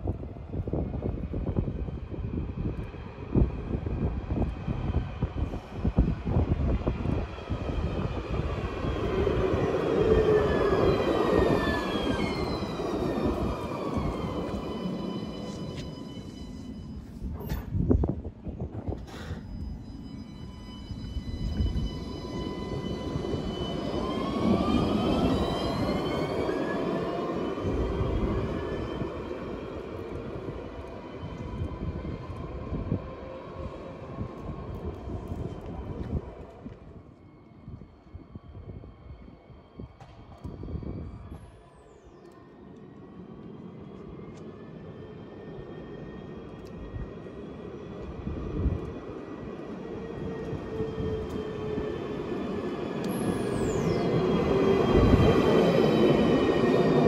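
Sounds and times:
tram motors whining: 3.7s - 57.0s.

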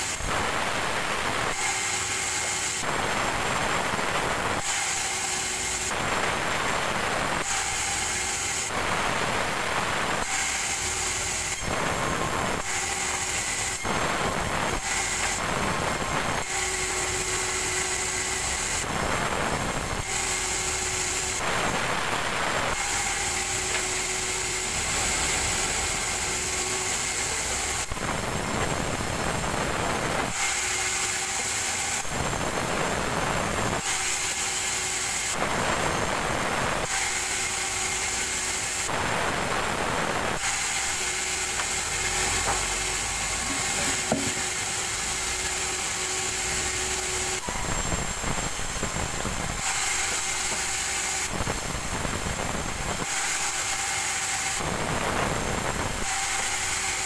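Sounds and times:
band saw blade whining: 0.0s - 57.0s
saw rasping through wood: 1.5s - 3.3s, 4.6s - 8.8s, 9.5s - 19.0s, 19.8s - 28.0s, 30.0s - 57.0s.

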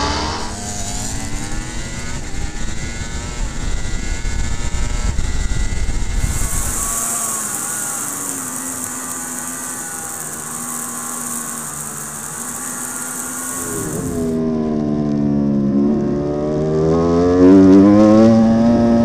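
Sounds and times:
motorcycle engine at racing speed: 0.0s - 19.0s
wind hiss over camera: 0.5s - 14.4s.

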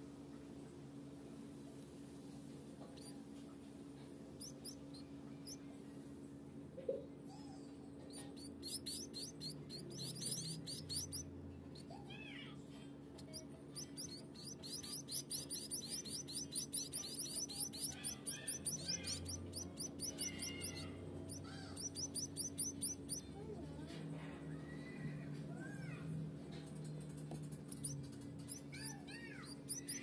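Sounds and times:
finch nestlings chirping: 4.4s - 5.6s, 8.2s - 11.3s, 13.2s - 23.3s, 27.4s - 30.0s.

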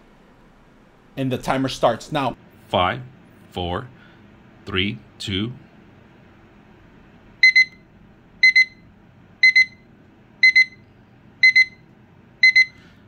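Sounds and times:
clock alarm double beeps: 7.4s - 7.8s, 8.4s - 8.8s, 9.4s - 9.8s, 10.4s - 10.8s, 11.4s - 11.8s, 12.4s - 12.8s.

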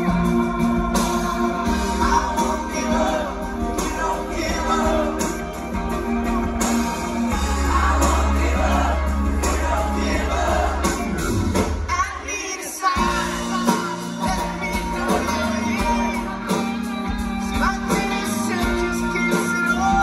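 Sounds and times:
man singing lead: 0.0s - 6.1s, 11.8s - 20.0s
live rock band playing: 0.0s - 20.0s.

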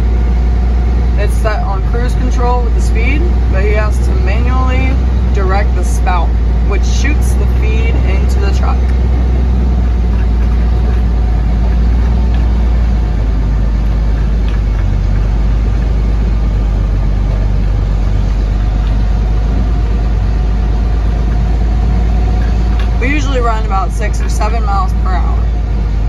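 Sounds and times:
truck engine from inside cab: 0.0s - 26.0s.

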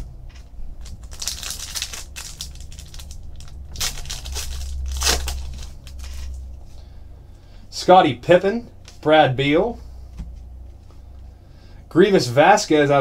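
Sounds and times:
wrapper crinkling: 0.3s - 6.5s
wrapper ripping: 0.8s - 6.4s.

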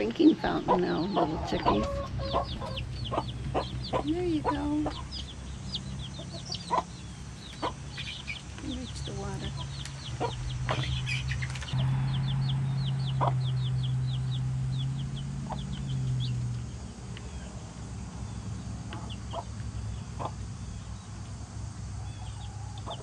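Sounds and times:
hens clucking: 0.0s - 11.7s, 18.9s - 20.4s
baby chicks peeping: 0.0s - 23.0s
steady low hum: 0.0s - 23.0s.

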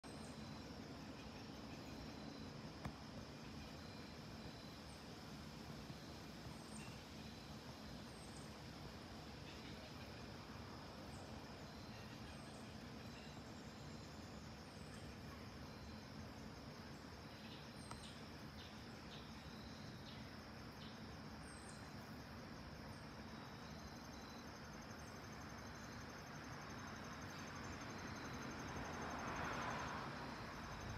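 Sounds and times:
insects trilling: 0.0s - 30.9s.

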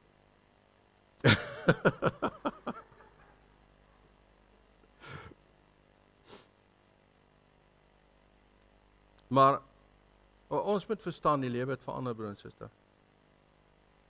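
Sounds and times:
man laughing: 1.2s - 3.5s.

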